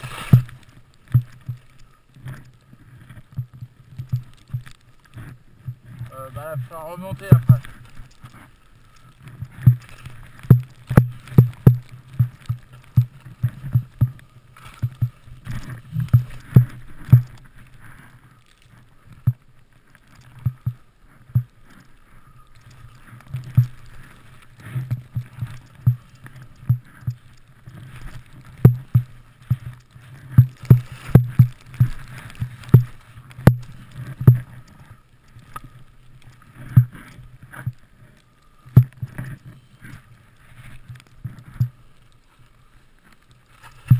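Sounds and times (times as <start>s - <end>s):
rush of snow and air: 0.0s - 1.0s
skis thumping on snow: 0.0s - 21.9s, 22.6s - 35.8s.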